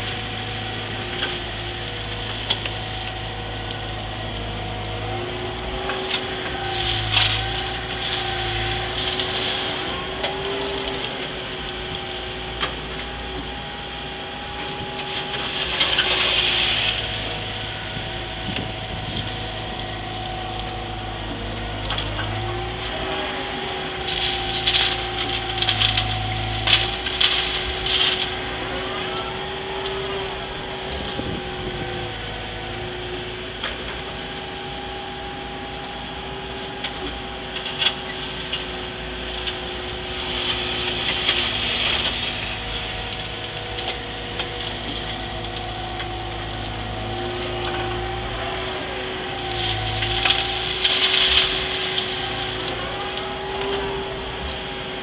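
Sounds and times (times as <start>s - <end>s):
gravel scraping in bucket: 0.0s - 13.4s, 14.7s - 28.7s, 30.8s - 31.7s, 39.6s - 54.4s
excavator engine and hydraulics: 0.0s - 55.0s.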